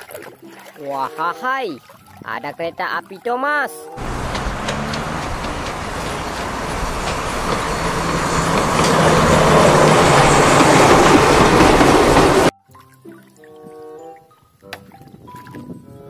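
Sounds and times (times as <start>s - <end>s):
steam train rumbling clatter: 4.0s - 12.5s.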